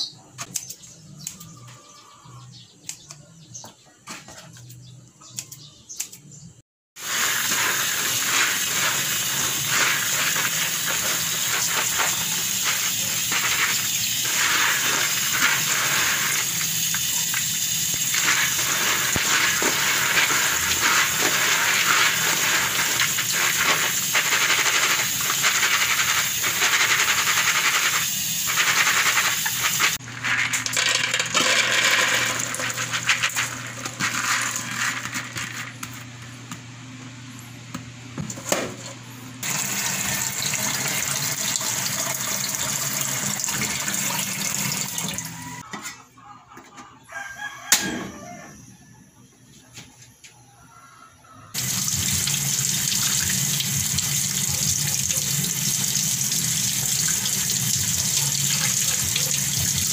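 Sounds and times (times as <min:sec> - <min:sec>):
tap water running: 0:07.0 - 0:35.5, 0:39.4 - 0:45.6, 0:51.6 - 0:59.9.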